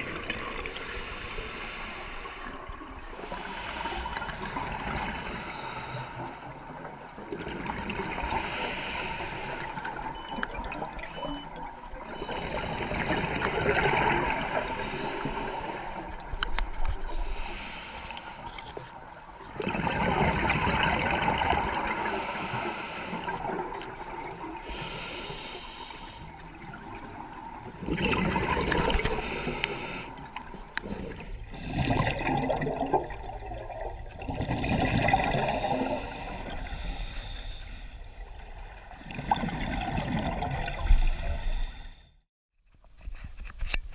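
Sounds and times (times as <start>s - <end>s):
exhaled air bubbling underwater: 0.0s - 42.0s
diver breathing through a regulator: 0.5s - 6.7s, 8.1s - 9.9s, 13.8s - 18.7s, 21.7s - 23.8s, 24.6s - 26.5s, 28.6s - 32.5s, 35.0s - 38.4s, 40.7s - 42.2s.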